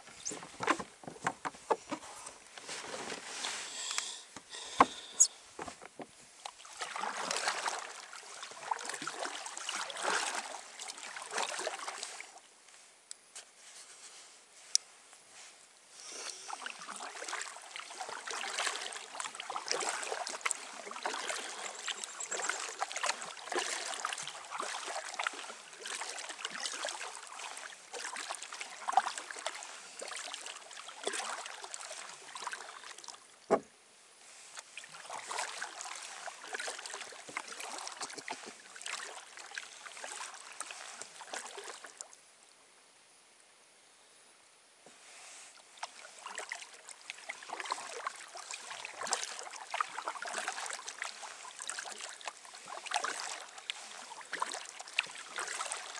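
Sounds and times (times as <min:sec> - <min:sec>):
paddle splashing water: 0:00.0 - 0:12.4, 0:16.3 - 0:42.2, 0:44.9 - 0:55.9
sharp knocks: 0:33.5 - 0:33.7.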